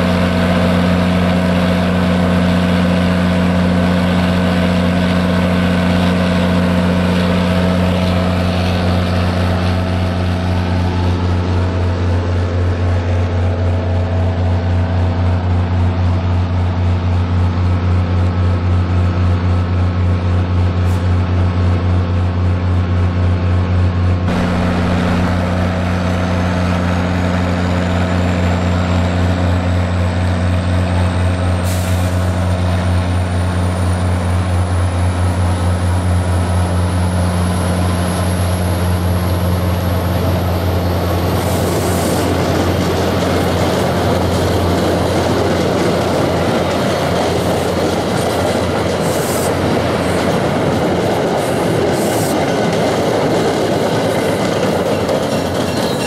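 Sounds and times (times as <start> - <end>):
diesel engine hum: 0.0 - 56.0
train coaches rumbling on rails: 0.0 - 56.0
high whine rising in pitch: 24.2 - 31.5.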